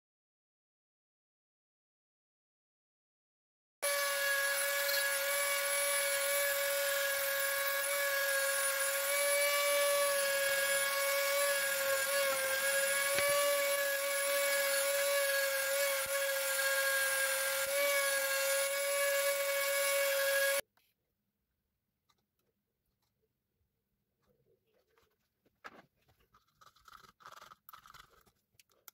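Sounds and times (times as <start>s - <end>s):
rotary tool carving wood: 3.8s - 20.6s, 26.1s - 28.9s.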